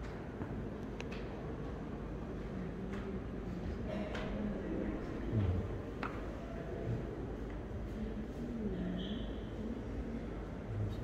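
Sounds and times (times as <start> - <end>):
faint voices: 2.4 - 11.0.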